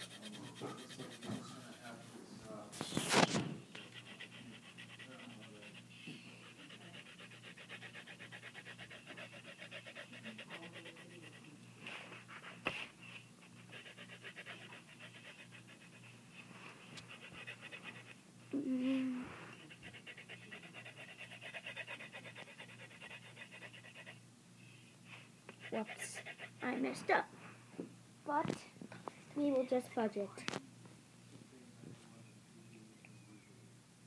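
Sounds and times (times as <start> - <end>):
colouring tool scratching on paper: 0.0 - 2.2
faint steady hum: 0.0 - 34.0.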